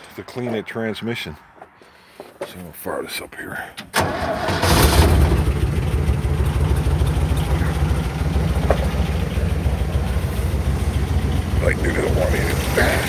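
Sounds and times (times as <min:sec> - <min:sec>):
car engine idling: 0:03.9 - 0:13.0.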